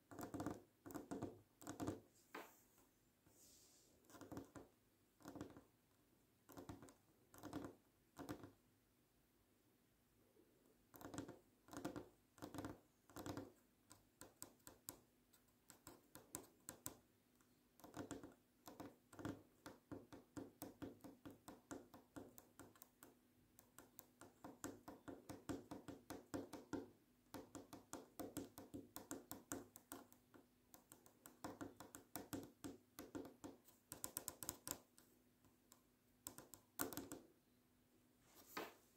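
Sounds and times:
fingernails tapping on wood: 0:10.9 - 0:13.5.

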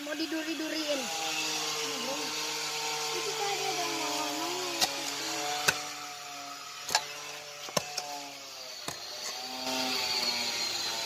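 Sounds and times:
hoe chopping into soil: 0:06.8 - 0:08.2, 0:08.8 - 0:10.4.

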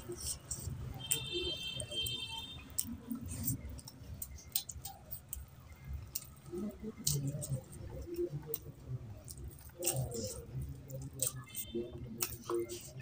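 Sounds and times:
chewing and lip smacks: 0:00.0 - 0:13.0.

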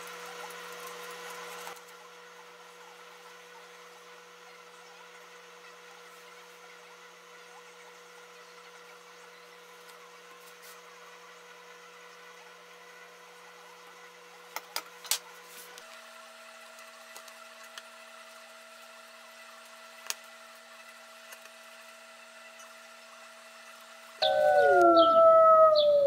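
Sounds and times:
faint steady hum: 0:24.2 - 0:26.0.

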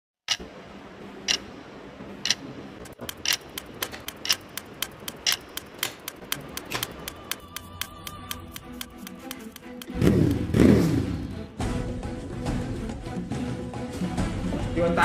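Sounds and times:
clock ticking: 0:00.3 - 0:00.5, 0:01.2 - 0:01.5, 0:02.2 - 0:10.4.

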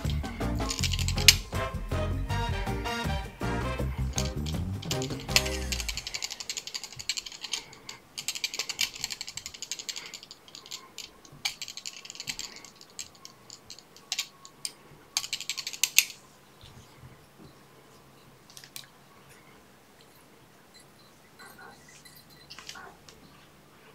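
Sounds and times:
rapid ratchet-like clicking: 0:00.0 - 0:01.7, 0:03.8 - 0:14.3, 0:15.2 - 0:16.2.

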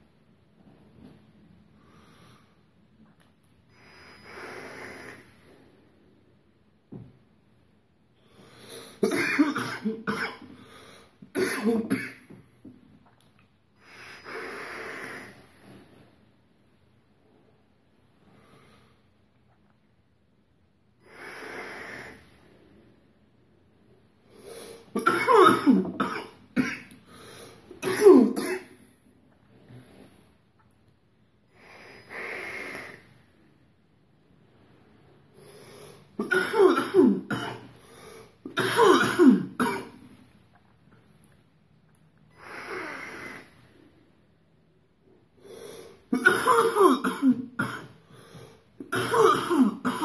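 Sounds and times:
man coughing harshly: 0:09.0 - 0:10.4, 0:11.4 - 0:12.2, 0:25.0 - 0:26.8, 0:27.8 - 0:28.7, 0:36.2 - 0:37.6, 0:38.6 - 0:39.9, 0:46.2 - 0:47.9, 0:48.9 - 0:50.0.

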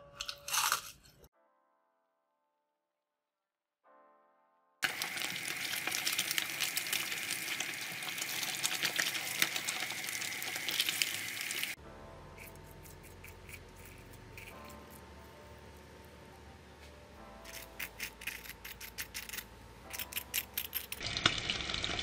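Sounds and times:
fish deep frying in oil: 0:04.8 - 0:11.8, 0:21.0 - 0:22.0.

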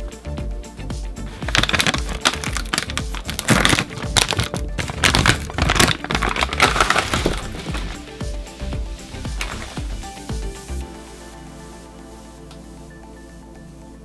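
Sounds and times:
background music: 0:00.0 - 0:14.0
crunching snacks: 0:01.4 - 0:08.0.

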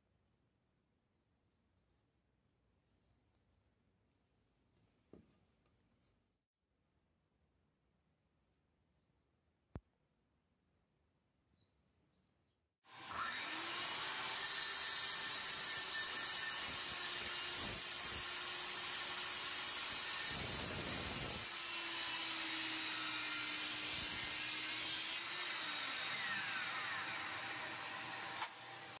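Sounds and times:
circular saw cutting a board: 0:12.9 - 0:29.0.

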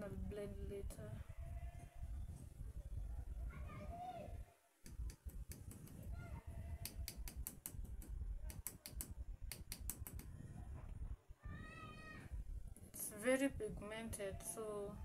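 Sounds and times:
brush tapping plastic pot: 0:06.8 - 0:10.3.

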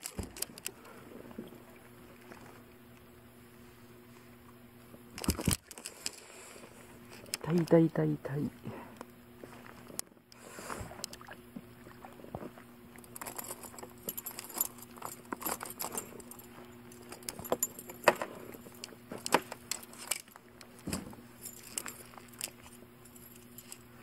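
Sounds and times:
fishing tackle clicking and rattling: 0:13.0 - 0:20.8, 0:21.4 - 0:23.9.

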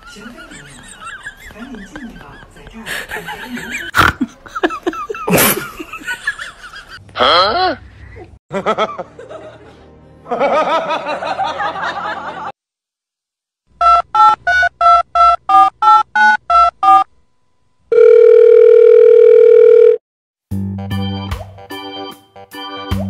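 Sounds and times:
steady dial tone: 0:17.9 - 0:20.0.

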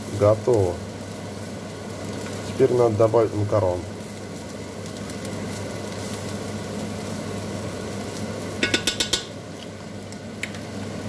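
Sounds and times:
meat sizzling in a frying pan: 0:00.0 - 0:11.0
utensil clinking against cookware: 0:08.6 - 0:09.4.

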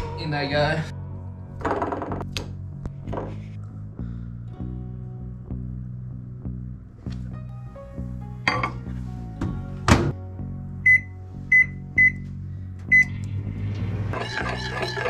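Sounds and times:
microwave keypad beeps: 0:10.9 - 0:12.2.

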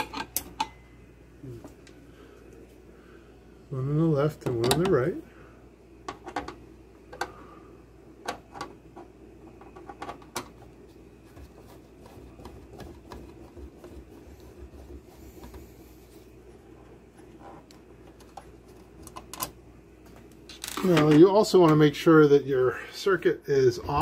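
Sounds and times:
scraping and handling: 0:08.2 - 0:21.3.

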